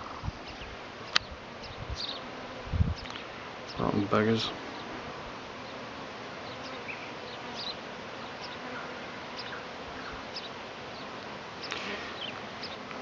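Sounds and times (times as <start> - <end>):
bees buzzing: 0.0 - 13.0.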